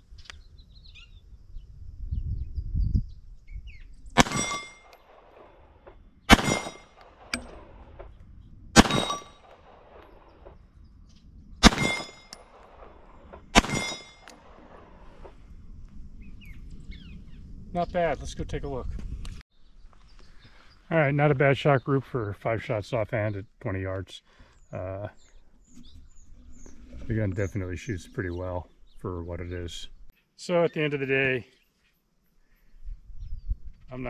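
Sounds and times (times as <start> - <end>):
pistol shots: 4.2 - 5.6, 6.3 - 8.0, 8.8 - 10.2, 11.6 - 15.0.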